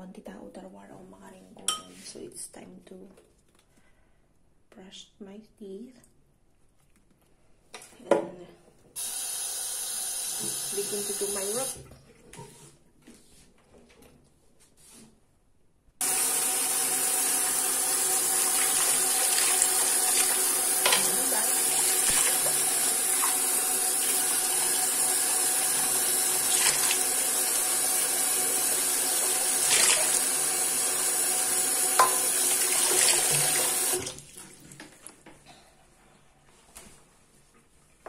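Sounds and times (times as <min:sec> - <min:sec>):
sink tap running: 0:09.0 - 0:11.8, 0:16.0 - 0:35.0.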